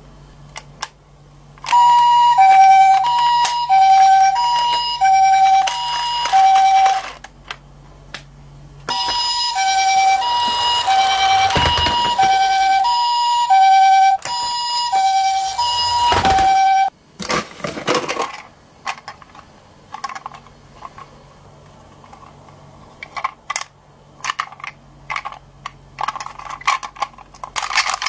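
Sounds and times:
two-tone ambulance siren: 1.7 - 7.2, 8.9 - 16.9.

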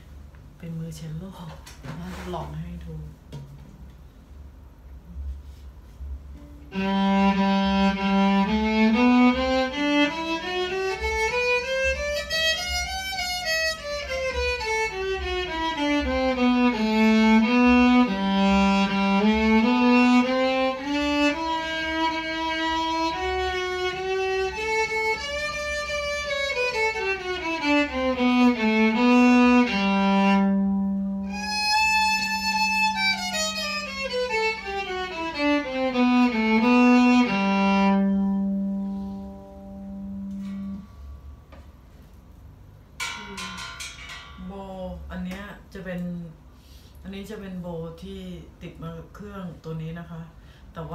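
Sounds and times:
electric violin playing scales: 6.7 - 40.8.

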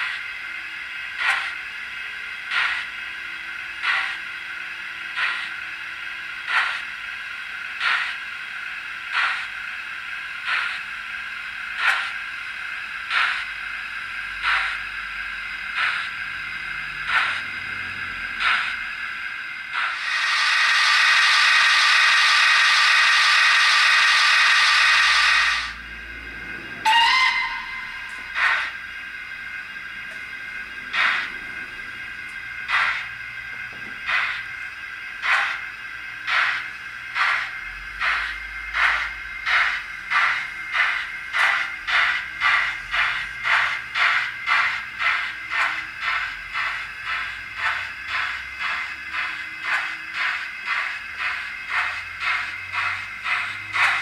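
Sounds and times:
steam exhaust beats: 0.0 - 54.0
loud hiss of steam: 15.8 - 29.1
short rising whistle: 26.8 - 28.4.

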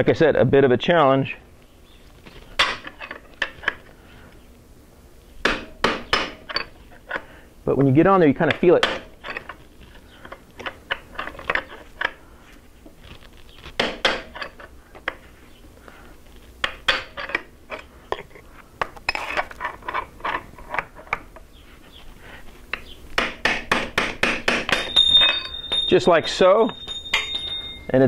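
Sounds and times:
hammer tapping steel punch: 22.8 - 27.9.

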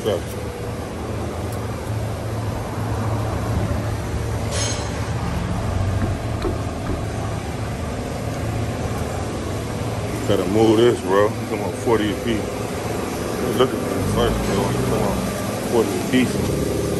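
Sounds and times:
vehicle engine idling: 0.0 - 16.9.

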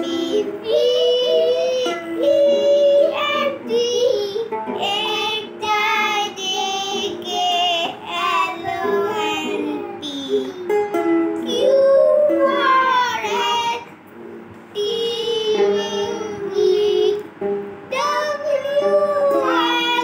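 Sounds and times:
child singing: 0.0 - 10.8, 11.4 - 13.9, 14.7 - 17.3, 17.9 - 20.0
music: 0.0 - 20.0.

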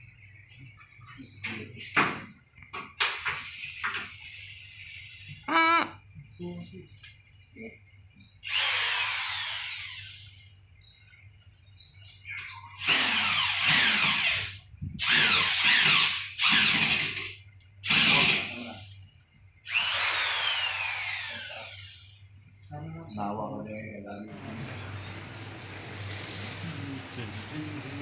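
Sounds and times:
power drill drilling into wall: 8.4 - 10.4, 12.8 - 18.7, 19.6 - 22.2.

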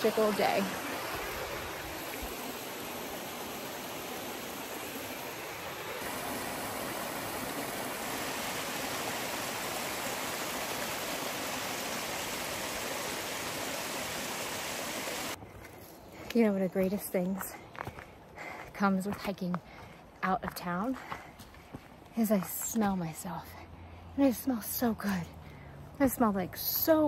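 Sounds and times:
stream rushing over boulders: 0.0 - 15.4.

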